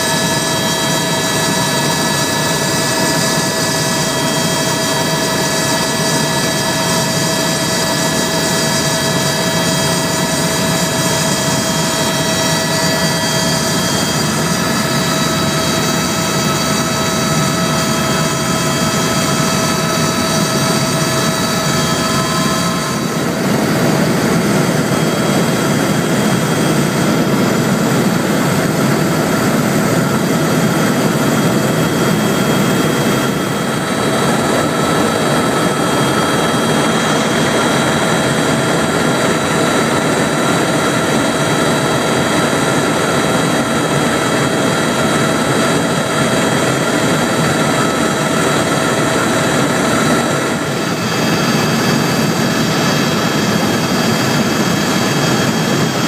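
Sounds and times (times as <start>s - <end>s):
high whining tones: 0.0s - 39.6s
helicopter engine and rotor noise: 0.0s - 56.0s.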